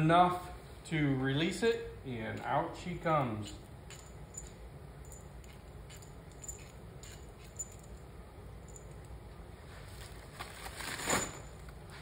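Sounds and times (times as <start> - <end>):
faint steady hum: 0.0 - 12.0
metal parts clicking: 3.9 - 8.1.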